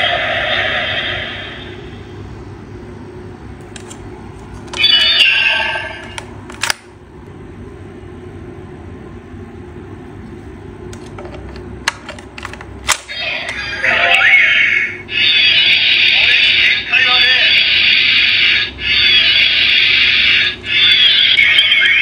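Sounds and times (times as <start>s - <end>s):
toy electronic sound effect: 4.8s - 6.2s, 13.1s - 22.0s.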